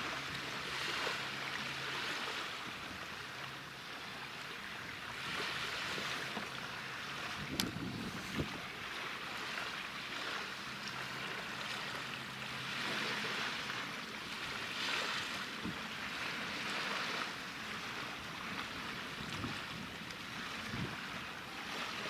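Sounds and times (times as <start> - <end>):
faint low hum of ships: 0.0 - 22.0
sea waves washing in: 0.0 - 22.0
wind buffeting microphone: 7.2 - 9.0, 15.2 - 15.9, 18.0 - 22.0.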